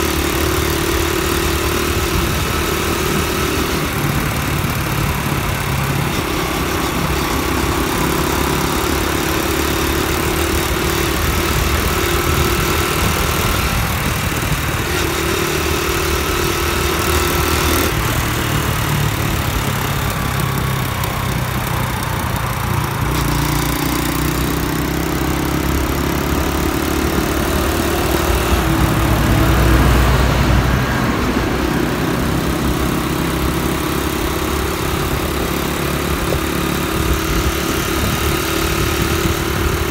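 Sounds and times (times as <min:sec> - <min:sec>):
motorbike engine running: 0:00.0 - 0:39.9
wind and road noise: 0:00.0 - 0:39.9.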